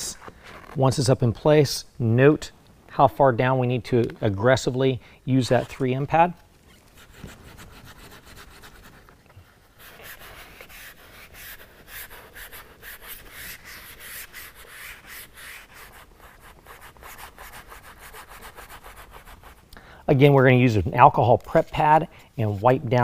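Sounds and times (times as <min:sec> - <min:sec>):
plastic rubbing against rubber: 0:00.0 - 0:01.1, 0:06.6 - 0:19.7.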